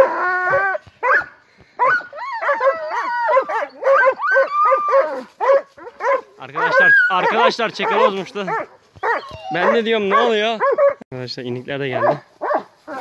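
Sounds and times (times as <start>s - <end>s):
dogs yelping: 0.0s - 11.0s, 12.0s - 13.0s.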